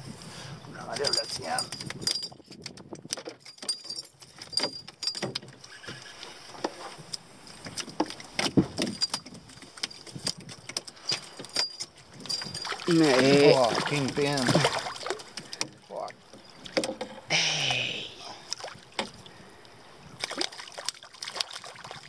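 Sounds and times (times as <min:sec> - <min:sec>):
fishing gear clicking and rattling: 0:00.8 - 0:17.3, 0:20.1 - 0:22.0
knock in boat: 0:08.0 - 0:09.0, 0:16.4 - 0:17.2.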